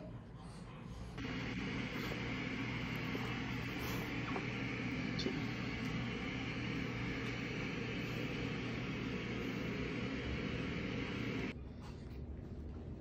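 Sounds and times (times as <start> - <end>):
steady droning hum: 1.2 - 11.6.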